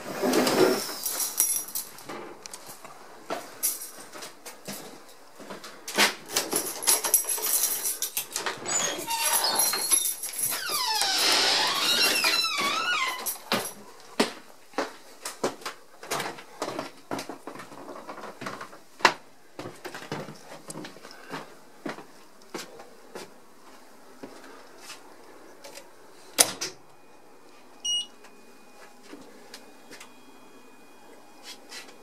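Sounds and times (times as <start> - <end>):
faint steady high tones: 25.4 - 32.0.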